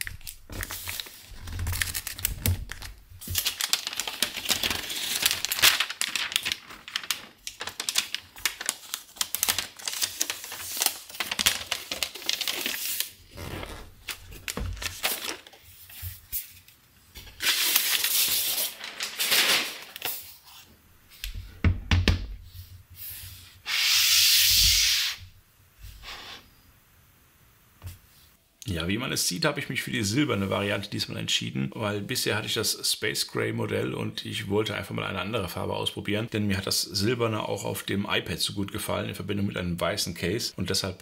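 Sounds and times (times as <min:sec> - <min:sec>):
paper wrapping crinkling and tearing: 0:00.0 - 0:20.6.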